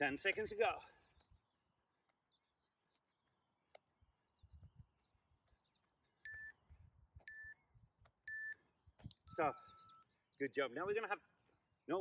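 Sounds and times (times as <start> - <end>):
short electronic beeps: 6.2 - 6.6, 7.3 - 7.6, 8.3 - 8.6, 9.2 - 10.1.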